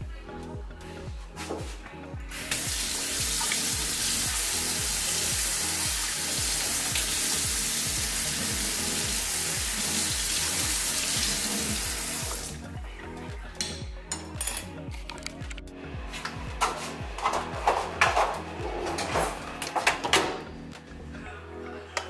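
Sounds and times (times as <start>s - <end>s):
tap water running into sink: 2.5s - 12.6s.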